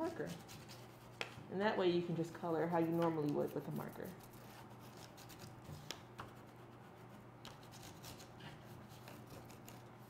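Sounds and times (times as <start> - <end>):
crayon scratching on paper plate: 0.0 - 1.0, 2.6 - 5.5.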